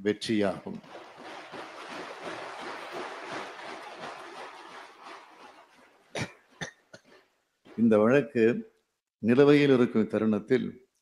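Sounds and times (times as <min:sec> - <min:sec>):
people applauding: 0:00.8 - 0:05.8.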